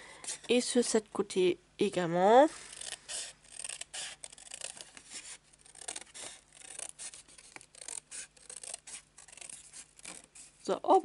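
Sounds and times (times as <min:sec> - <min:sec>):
paper rustling: 0:02.5 - 0:10.7
scissors snipping cardstock: 0:02.7 - 0:10.5.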